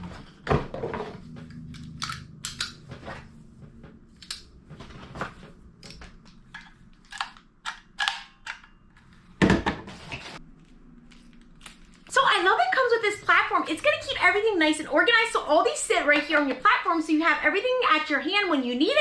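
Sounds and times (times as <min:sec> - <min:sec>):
plastic wrapping crinkling: 0:10.6 - 0:12.2.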